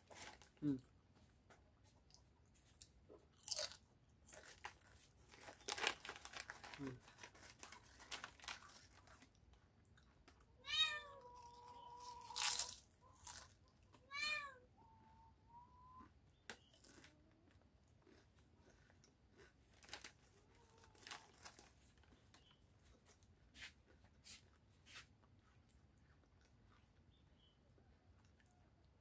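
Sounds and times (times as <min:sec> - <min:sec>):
foil chip bag crinkling: 0:03.5 - 0:09.4, 0:12.0 - 0:13.6, 0:19.7 - 0:22.2
cat meowing: 0:10.6 - 0:12.4, 0:14.0 - 0:15.8.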